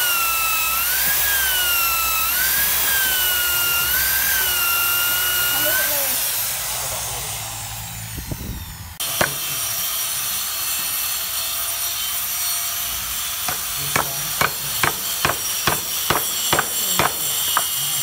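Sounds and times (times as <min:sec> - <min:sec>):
hammer striking steel chisel: 0:09.0 - 0:09.7, 0:13.4 - 0:18.0.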